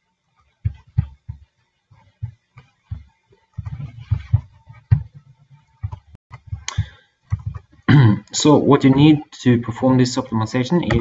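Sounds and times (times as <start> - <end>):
keyboard typing: 5.8 - 7.7.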